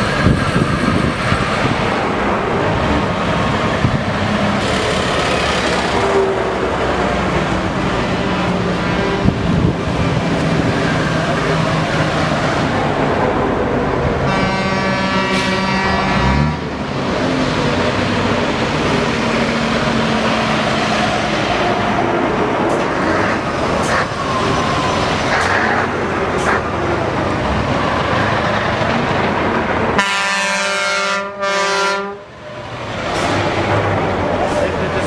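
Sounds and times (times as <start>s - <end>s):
lorries driving past: 0.0s - 35.0s
truck air horn: 14.2s - 16.8s, 30.0s - 32.3s.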